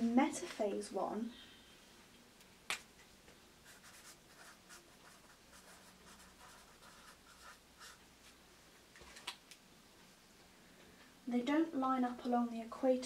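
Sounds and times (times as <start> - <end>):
marker pen scratching on paper: 3.6 - 8.0.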